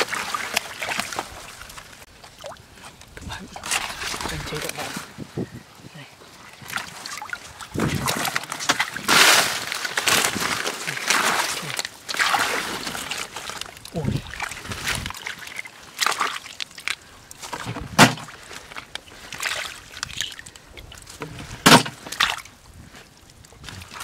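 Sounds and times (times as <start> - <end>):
hands splashing in shallow water: 6.6 - 21.0.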